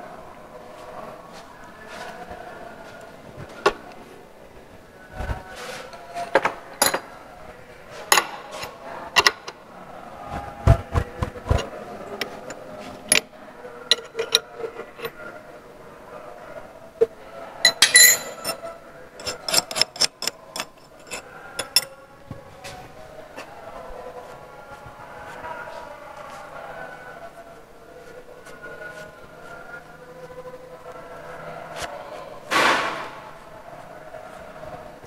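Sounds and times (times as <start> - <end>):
metal clinks and knocks: 13.9 - 15.1, 17.7 - 18.6, 19.2 - 21.9
ringing metal clatter: 17.7 - 18.6.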